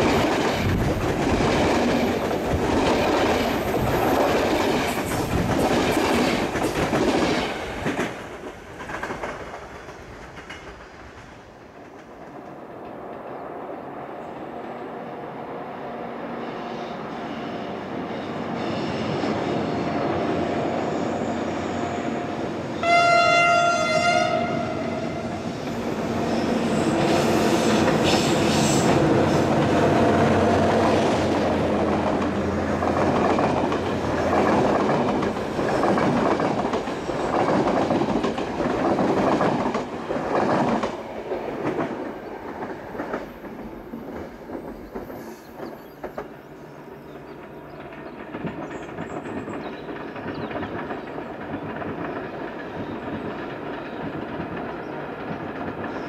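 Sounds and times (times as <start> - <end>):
train wheels clacking on rails: 0.0 - 13.4, 22.8 - 56.0
train horn: 16.4 - 31.0.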